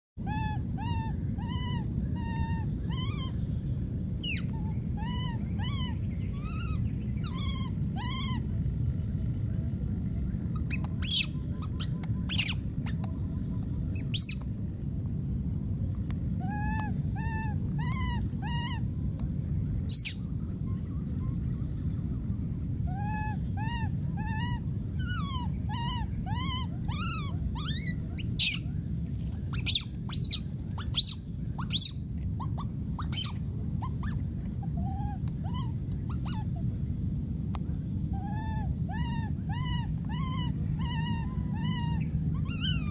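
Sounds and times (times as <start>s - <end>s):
infant monkey crying: 0.2s - 3.4s, 4.2s - 8.9s, 10.5s - 13.0s, 13.9s - 14.4s, 16.4s - 19.0s, 19.9s - 20.2s, 22.8s - 36.7s, 38.0s - 42.9s
steady low rumble: 0.2s - 42.9s.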